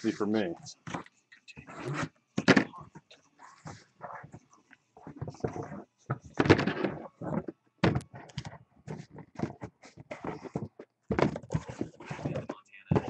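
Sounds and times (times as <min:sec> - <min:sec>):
cardboard case knocks and scrapes: 0:08.9 - 0:13.0.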